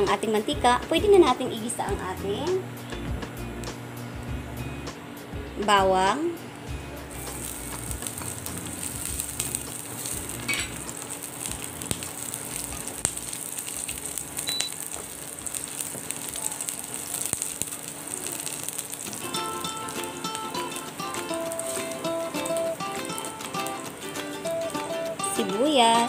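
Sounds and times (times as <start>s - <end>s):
garlic sizzling in hot oil: 7.0s - 26.0s.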